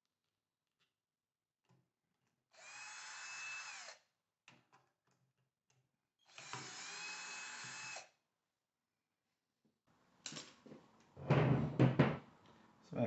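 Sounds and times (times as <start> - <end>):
cordless drill whining: 2.6 - 4.0, 6.2 - 8.1.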